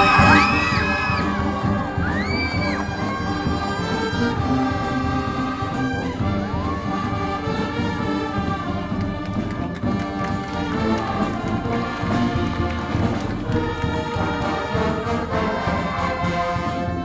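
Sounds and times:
steady low drum beat: 0:00.0 - 0:05.6
brass band playing: 0:00.0 - 0:17.0.

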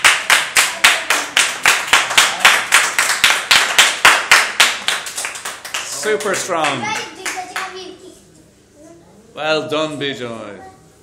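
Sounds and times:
hands clapping: 0:00.0 - 0:07.8.

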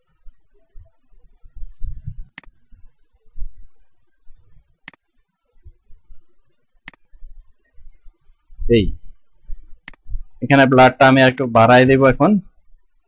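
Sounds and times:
computer mouse clicks: 0:02.3 - 0:02.6, 0:04.8 - 0:05.0, 0:06.8 - 0:07.1, 0:09.8 - 0:10.1, 0:11.3 - 0:11.5.

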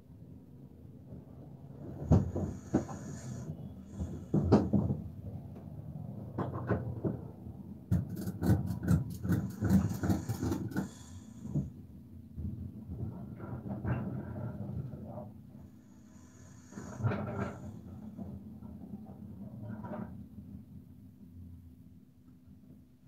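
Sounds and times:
knocks and rattles in van cab: 0:01.8 - 0:05.2.

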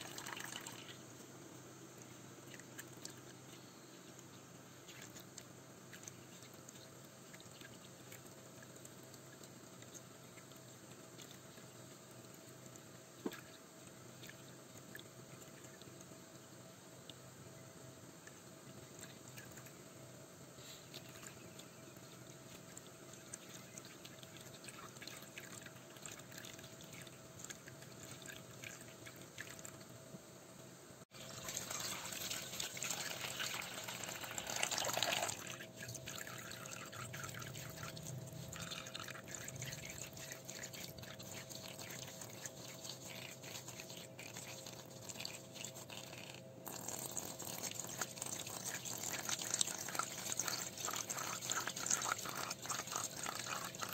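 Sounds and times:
water running and dripping: 0:20.8 - 0:29.9, 0:31.1 - 0:53.9
water splashing: 0:31.1 - 0:53.9.

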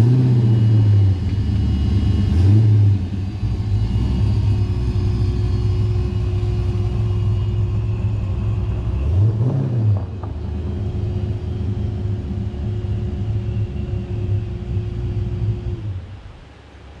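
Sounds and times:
car engine rumbling and revving: 0:00.0 - 0:17.0.

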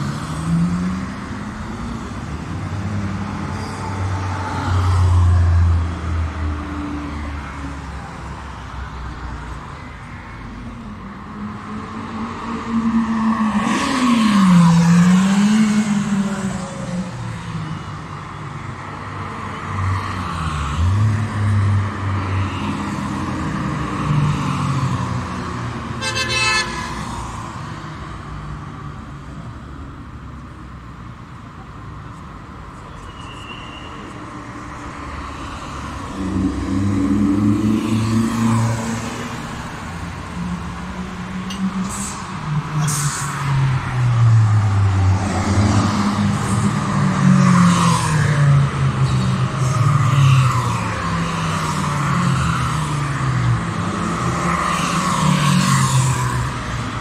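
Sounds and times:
short car horn toot: 0:26.0 - 0:26.8.

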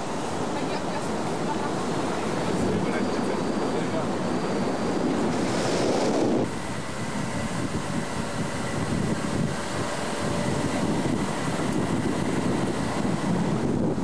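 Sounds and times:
car road and engine noise: 0:00.0 - 0:14.0
wind on microphone: 0:04.6 - 0:14.0.

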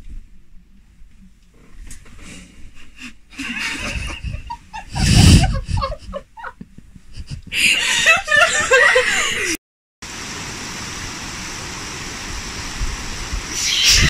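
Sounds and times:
stifled giggling: 0:02.8 - 0:09.6
bedding rustling: 0:03.4 - 0:07.4.

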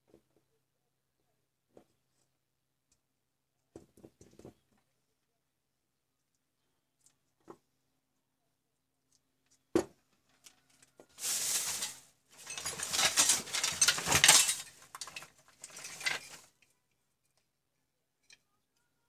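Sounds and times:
metal scraping and clinking: 0:11.2 - 0:16.7.

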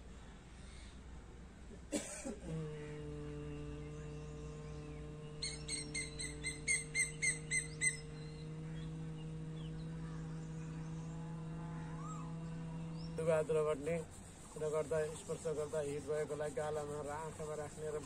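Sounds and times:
person humming: 0:02.3 - 0:13.9
bird calling: 0:02.5 - 0:18.0.

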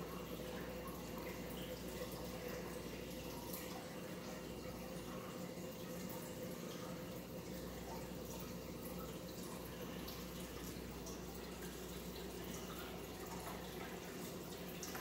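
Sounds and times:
faint water drips: 0:00.0 - 0:15.0
low pump hum: 0:00.0 - 0:15.0
water trickling and splashing: 0:00.0 - 0:15.0.

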